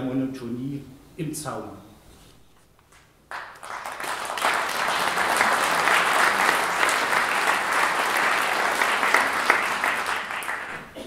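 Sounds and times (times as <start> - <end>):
audience clapping: 2.9 - 11.0.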